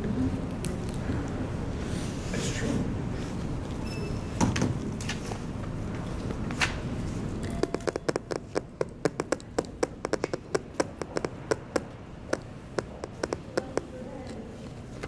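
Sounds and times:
sharp taps: 0:07.6 - 0:14.0.

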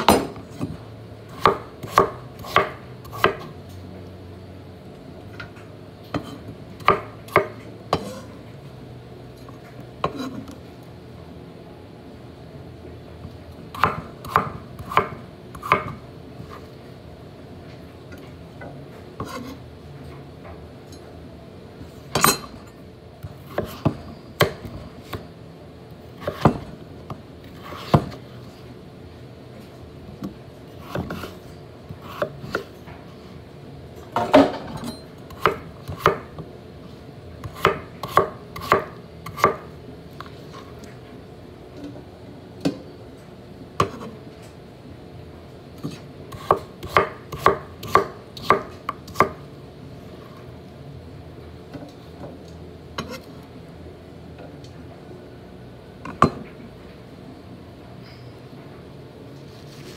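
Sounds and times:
knife chopping on wooden board: 0:01.4 - 0:03.5, 0:06.2 - 0:08.2, 0:13.8 - 0:16.0, 0:26.2 - 0:26.7, 0:30.8 - 0:31.4, 0:35.3 - 0:36.4, 0:37.4 - 0:39.7, 0:45.8 - 0:49.4.

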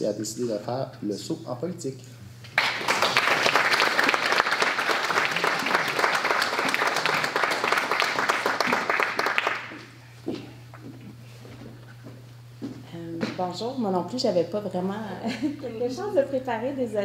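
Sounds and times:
people applauding: 0:02.5 - 0:10.0.

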